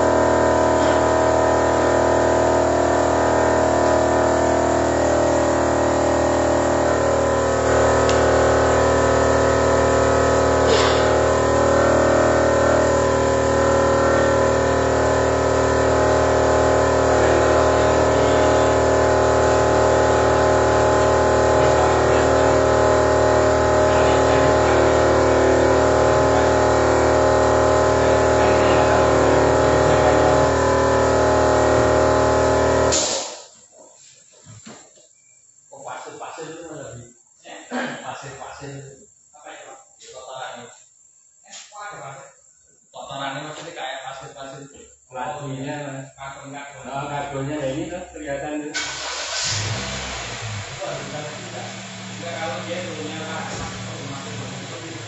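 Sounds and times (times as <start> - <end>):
machine droning: 0.0 - 33.5, 48.8 - 55.0.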